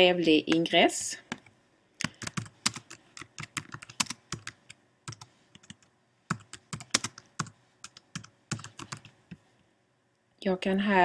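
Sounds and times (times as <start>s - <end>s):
typing on computer keyboard: 1.3s - 9.2s.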